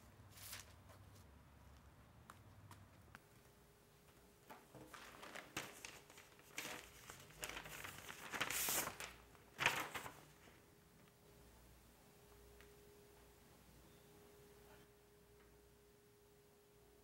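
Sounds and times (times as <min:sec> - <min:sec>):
sharp paper crackle: 0:00.3 - 0:01.0, 0:04.7 - 0:10.6
envelope paper rustling: 0:00.3 - 0:01.2, 0:04.5 - 0:10.6.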